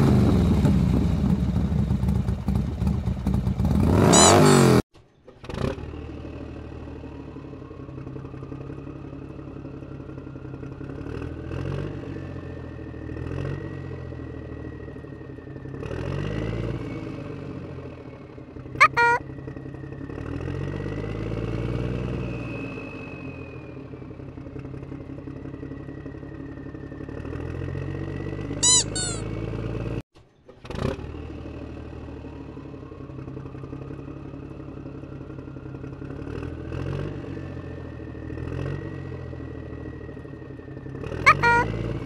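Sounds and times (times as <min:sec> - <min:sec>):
short high squeak: 0:04.1 - 0:04.8, 0:18.8 - 0:19.2, 0:28.6 - 0:29.3, 0:41.3 - 0:41.7.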